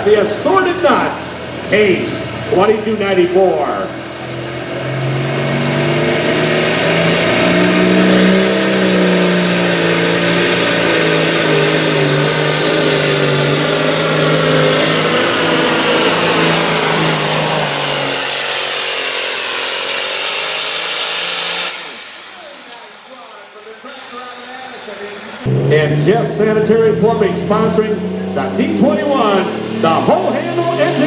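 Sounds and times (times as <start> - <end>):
tractor engine at full throttle: 0.0 - 31.0.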